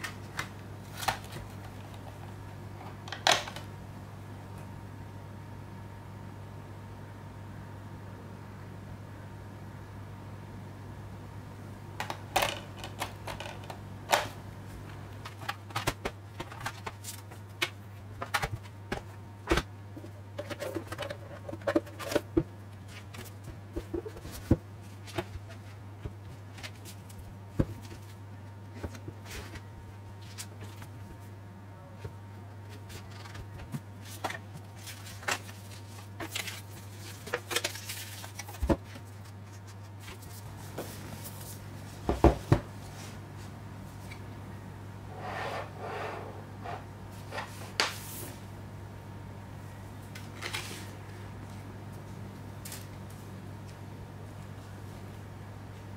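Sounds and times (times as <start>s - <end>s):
steady low hum: 0.0s - 55.9s
hands handling discs and box: 15.0s - 31.0s, 32.7s - 42.7s.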